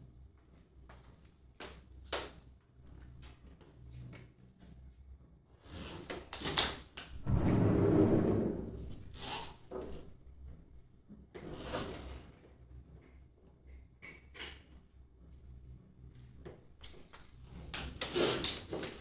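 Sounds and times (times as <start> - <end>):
scraping slide: 7.2 - 9.4.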